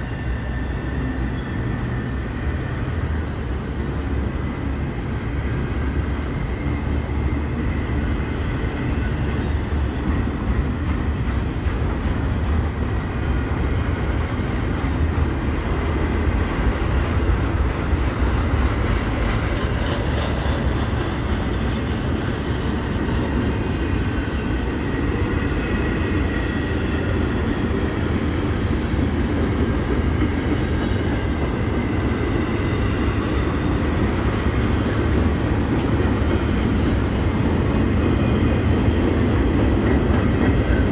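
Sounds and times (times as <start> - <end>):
steel wheels rumbling on track: 0.0 - 40.9.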